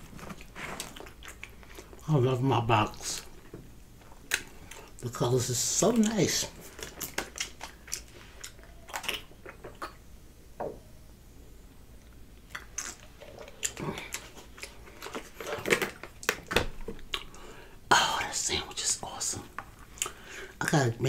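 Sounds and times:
person chewing food: 0.0 - 2.0, 3.2 - 5.0, 6.0 - 10.1, 12.0 - 17.6, 19.6 - 20.3.

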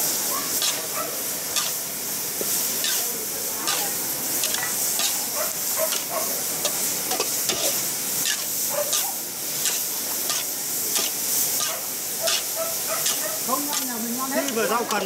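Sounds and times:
meat sizzling in a wok: 0.0 - 15.0
metal spatulas scraping a pan: 0.5 - 1.9, 2.7 - 15.0.

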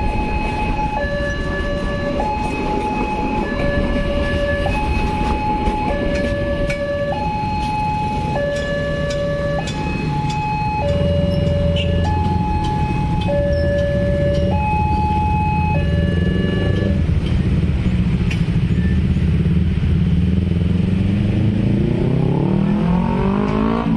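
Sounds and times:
two-tone crossing alarm: 0.0 - 17.1
train cars rumbling past: 0.0 - 21.8
engine noise: 0.0 - 23.9.

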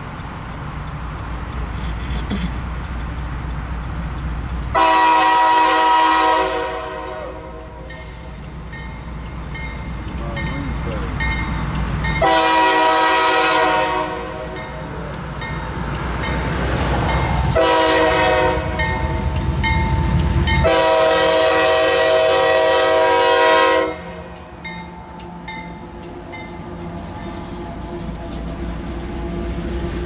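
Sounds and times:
diesel engine rumble: 0.0 - 30.0
locomotive air horn blasts: 4.7 - 8.0, 12.2 - 14.6, 17.5 - 18.9, 20.6 - 24.3.

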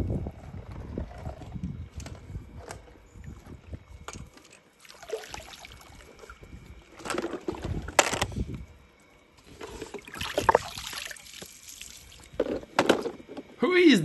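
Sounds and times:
pool water splashing: 4.8 - 6.3, 10.1 - 12.3
water running off: 10.1 - 12.3.

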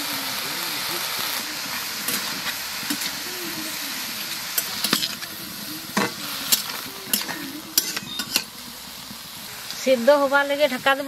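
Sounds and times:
greens sizzling in pan: 0.0 - 11.0
metal spatula scraping pan: 4.5 - 5.3, 5.9 - 8.6.

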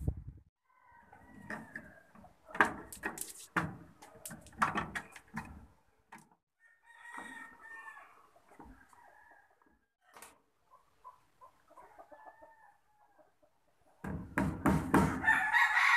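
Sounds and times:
rooster crowing: 0.6 - 2.0, 6.6 - 8.2, 15.1 - 15.9
chickens clucking: 8.0 - 14.0
sharp knocks: 14.0 - 15.2.

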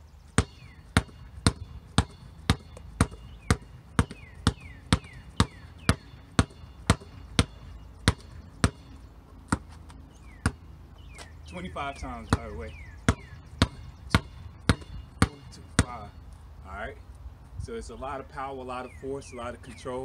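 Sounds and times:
basketball bouncing on concrete: 0.3 - 16.2.

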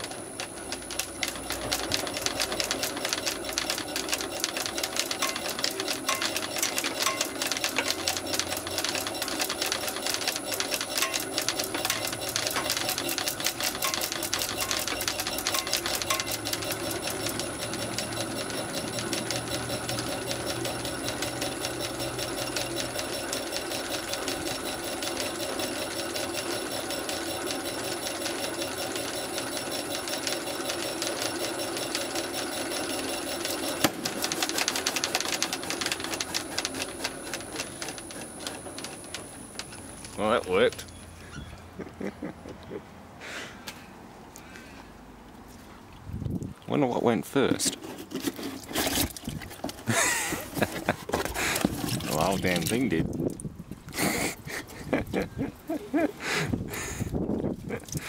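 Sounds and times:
water pump clattering: 0.0 - 40.9, 46.7 - 58.0.

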